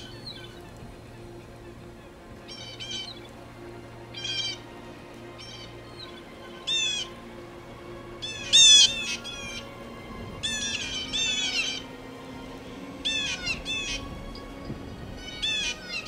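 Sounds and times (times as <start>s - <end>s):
bird squawking: 2.4s - 3.3s, 5.4s - 7.1s, 8.2s - 9.8s, 10.4s - 11.9s, 13.0s - 14.1s, 15.2s - 16.0s.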